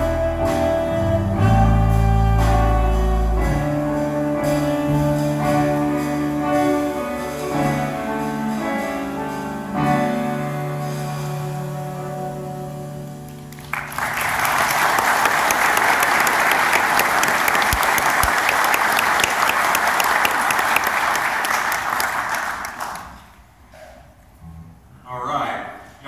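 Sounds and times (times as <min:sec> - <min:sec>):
electric bass: 0:00.0 - 0:13.3
electric guitar: 0:00.0 - 0:13.7
saxophone: 0:00.0 - 0:14.4.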